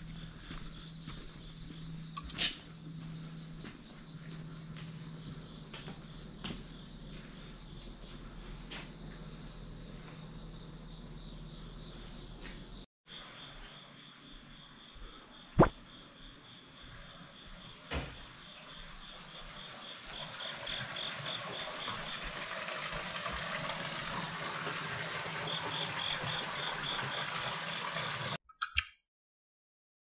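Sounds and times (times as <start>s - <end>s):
crickets chirping: 0.0s - 22.2s
sharp click: 2.2s - 2.5s, 28.5s - 29.0s.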